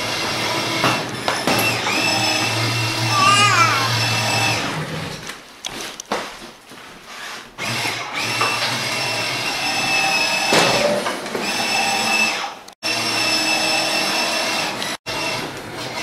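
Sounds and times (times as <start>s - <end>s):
toy motor whining: 2.0s - 4.6s.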